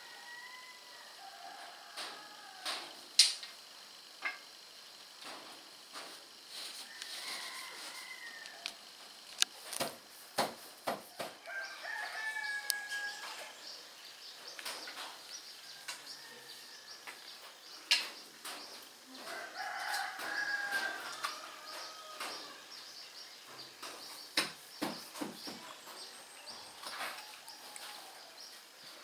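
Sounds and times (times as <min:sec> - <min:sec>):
rooster crowing: 0:00.0 - 0:03.1, 0:06.8 - 0:08.9, 0:11.1 - 0:13.8, 0:15.5 - 0:17.5, 0:19.0 - 0:22.8, 0:25.8 - 0:28.6.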